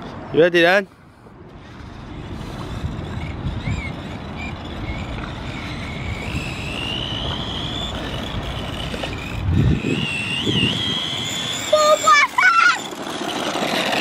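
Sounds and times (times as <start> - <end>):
electric motor whining: 1.6 - 14.0.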